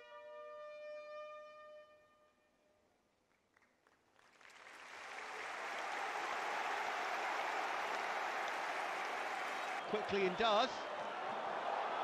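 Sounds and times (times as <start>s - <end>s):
stadium crowd applause: 3.4s - 12.0s.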